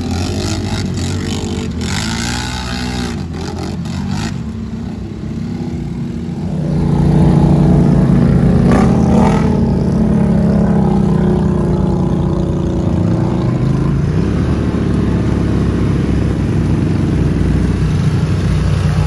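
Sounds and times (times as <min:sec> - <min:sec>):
atv engines running: 0:00.0 - 0:19.0.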